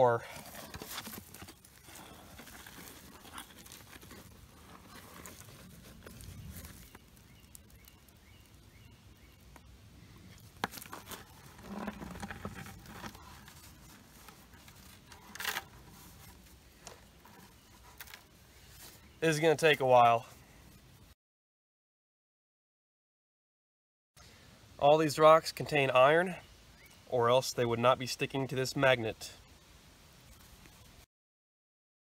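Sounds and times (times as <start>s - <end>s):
gravel scraping: 0.0s - 8.8s, 10.2s - 20.3s.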